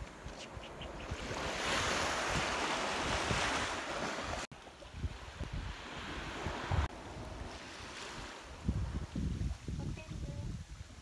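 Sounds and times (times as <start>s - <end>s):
wind buffeting microphone: 0.0s - 11.0s
wave washing on sand: 1.2s - 9.8s.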